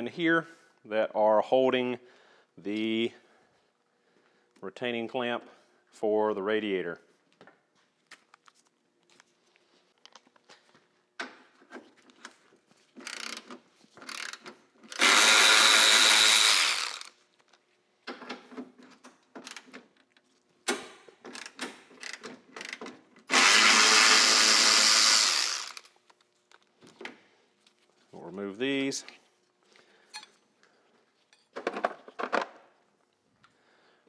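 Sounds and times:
cordless electric ratchet running: 13.0 - 13.4, 14.1 - 17.2, 21.4 - 26.0.

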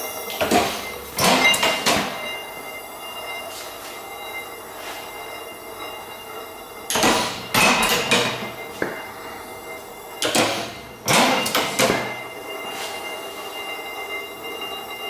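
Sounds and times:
engine clattering bangs and rattles: 0.4 - 2.4, 6.8 - 9.3, 10.2 - 12.4.

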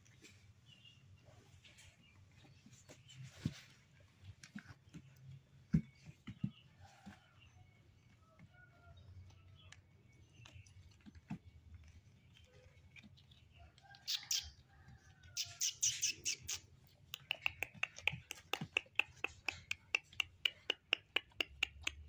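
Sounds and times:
puppies squeaking and whimpering: 15.4 - 18.2.

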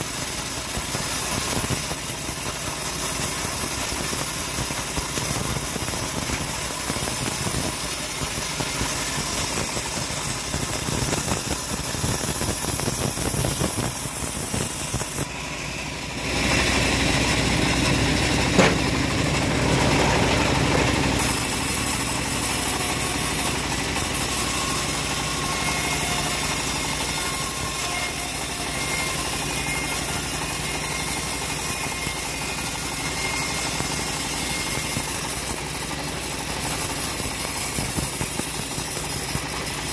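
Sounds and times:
bandsaw mill drone: 0.0 - 39.9
saw blade cutting wood: 0.0 - 39.9
sharp knock: 18.5 - 19.0.

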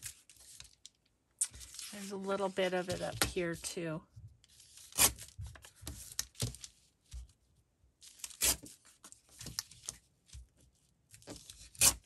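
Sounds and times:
paper rustling and tearing: 1.4 - 3.2, 4.5 - 6.8, 8.0 - 10.0.

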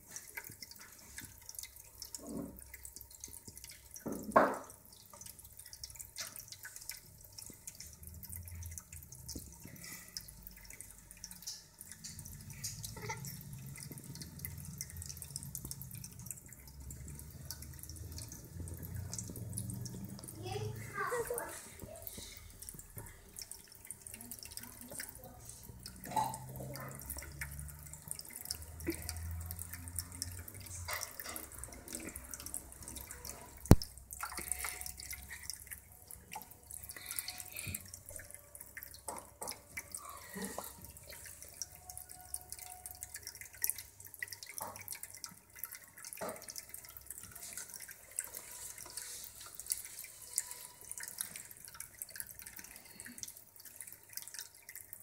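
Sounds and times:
water trickling into bowl: 0.0 - 55.0.

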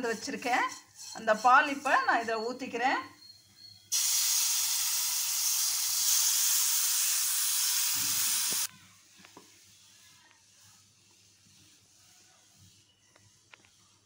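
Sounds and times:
milk sizzling in hot fat: 3.9 - 8.7.

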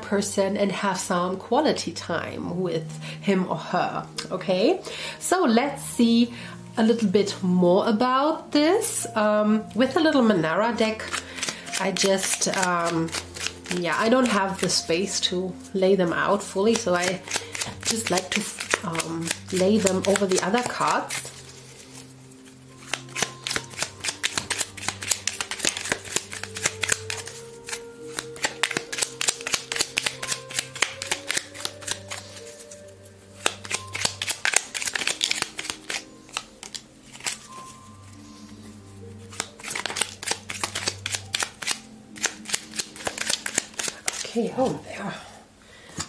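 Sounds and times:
soft background music: 0.0 - 46.0
cards clicking and slapping: 10.9 - 14.8, 16.6 - 22.0, 22.8 - 37.7, 39.3 - 44.4.

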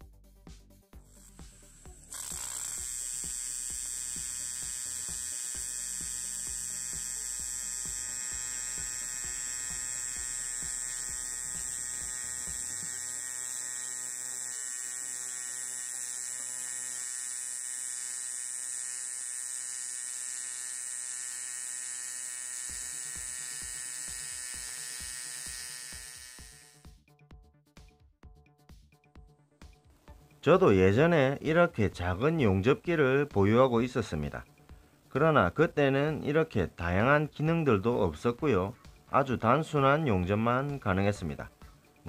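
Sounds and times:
welding arc buzzing: 1.0 - 26.9.

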